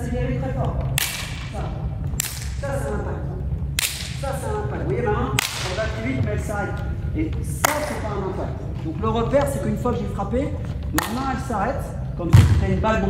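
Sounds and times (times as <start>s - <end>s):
hand slapping a volleyball: 0.9s - 1.5s, 5.4s - 5.9s, 11.0s - 11.2s.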